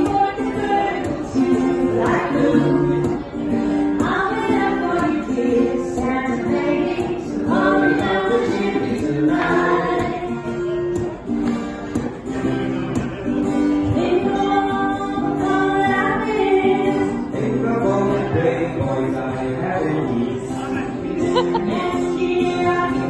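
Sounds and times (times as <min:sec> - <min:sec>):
people singing together: 0:00.0 - 0:03.3, 0:04.0 - 0:10.5, 0:21.4 - 0:23.0
acoustic guitar: 0:00.0 - 0:23.0.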